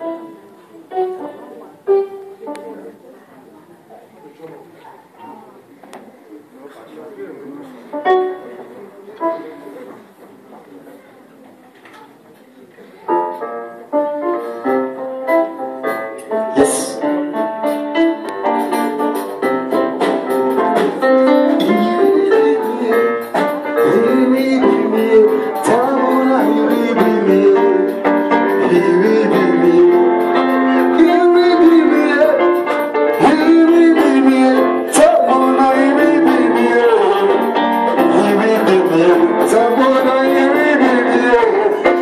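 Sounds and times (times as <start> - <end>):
electric keyboard playing: 0.0 - 3.2, 7.9 - 10.2, 13.1 - 42.0.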